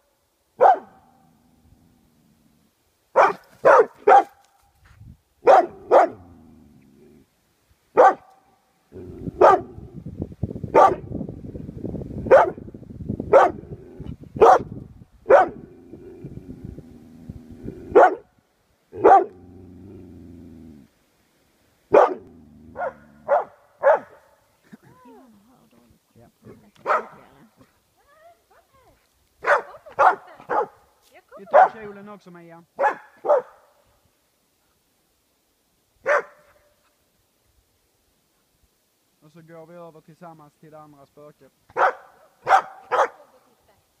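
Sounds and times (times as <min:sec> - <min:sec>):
dog barking sharply: 0:00.6 - 0:01.0, 0:03.2 - 0:04.4, 0:05.4 - 0:06.2, 0:08.0 - 0:08.4, 0:09.4 - 0:09.7, 0:10.8 - 0:11.0, 0:14.4 - 0:14.7, 0:15.3 - 0:15.6, 0:19.0 - 0:19.3, 0:21.9 - 0:22.2, 0:22.8 - 0:24.2, 0:26.8 - 0:27.2, 0:29.4 - 0:30.8, 0:32.8 - 0:33.6, 0:36.0 - 0:36.6, 0:41.7 - 0:43.2.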